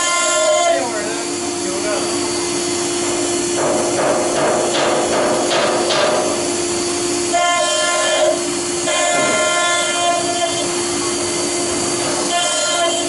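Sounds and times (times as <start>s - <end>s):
router spindle hum cutting stone: 0.0s - 2.8s, 6.3s - 13.0s
shrill spindle whine: 0.0s - 3.9s, 5.8s - 13.0s.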